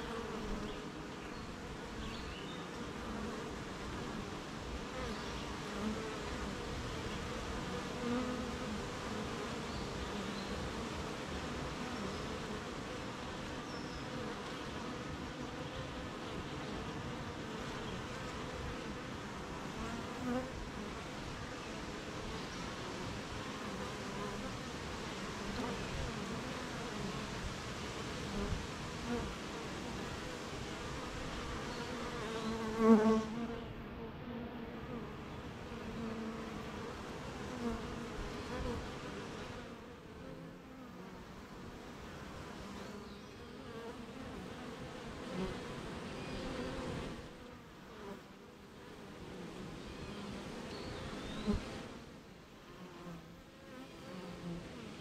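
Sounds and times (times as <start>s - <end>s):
honeybees buzzing: 0.0s - 55.0s.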